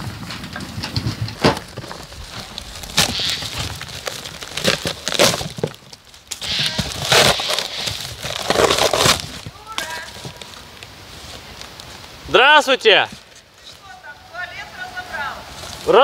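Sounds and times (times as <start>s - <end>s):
wooden boards cracking and splintering: 0.0s - 10.6s.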